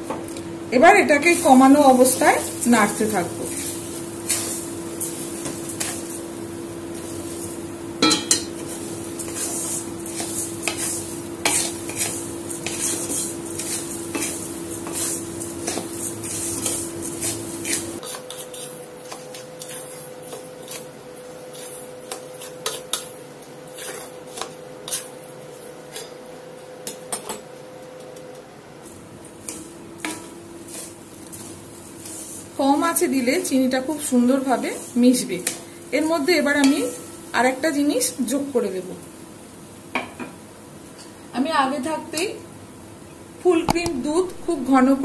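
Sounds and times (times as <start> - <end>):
spatula scraping in pan: 1.5 - 7.7, 8.3 - 27.1, 29.4 - 37.3.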